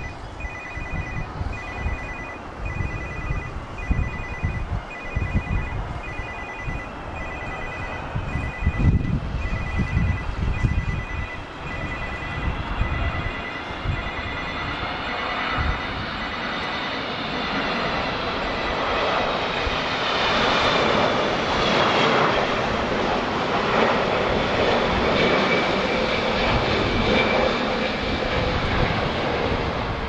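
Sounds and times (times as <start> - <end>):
electronic trilling ringtone: 0.0 - 18.8
jet engine whine: 0.0 - 30.0
wind gusts on microphone: 0.0 - 30.0.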